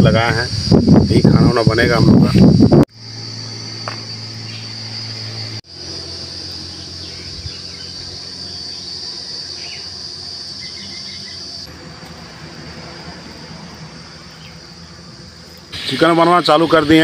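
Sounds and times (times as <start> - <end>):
insects shrilling: 0.0 - 17.0
faint chirps: 3.8 - 11.7.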